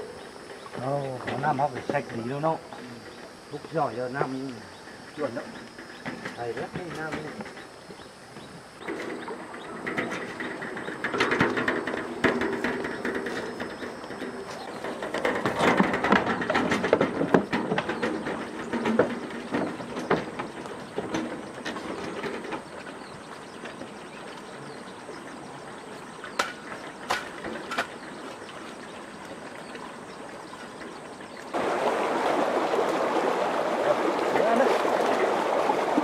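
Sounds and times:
irregular clattering and knocking: 0:00.2 - 0:24.4, 0:26.2 - 0:28.6.

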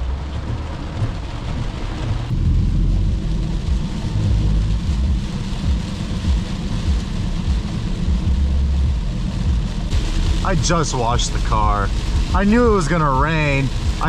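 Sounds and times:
hiss of rain and wet tyres: 0:00.0 - 0:14.0
low road and wind rumble: 0:00.0 - 0:14.0.

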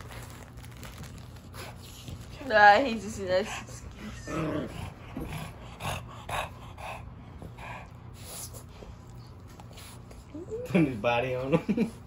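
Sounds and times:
dogs breathing noisily: 0:01.3 - 0:11.0.

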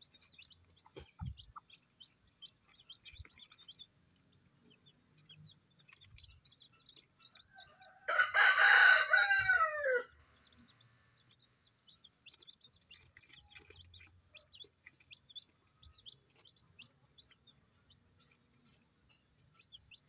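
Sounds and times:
chicks peeping: 0:00.0 - 0:20.0
rooster crowing: 0:07.7 - 0:10.1.

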